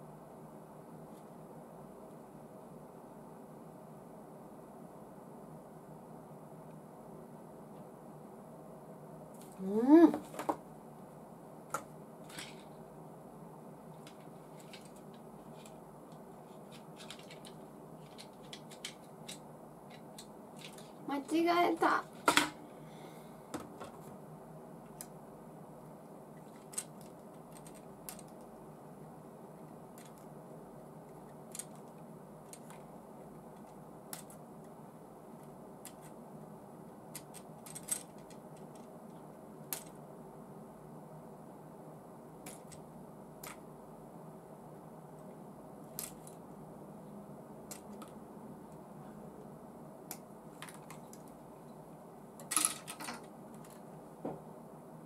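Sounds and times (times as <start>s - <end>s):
faint steady hum: 0.0s - 55.0s.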